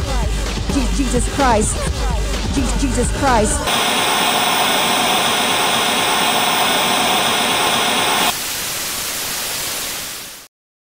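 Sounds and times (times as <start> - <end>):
tv static hiss: 3.4 - 10.5.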